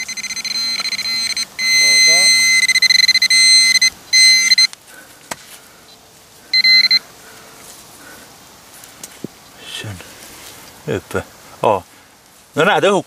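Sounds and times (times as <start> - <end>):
pinpointer buzzing alarm tone: 0.0 - 4.7, 6.5 - 7.0.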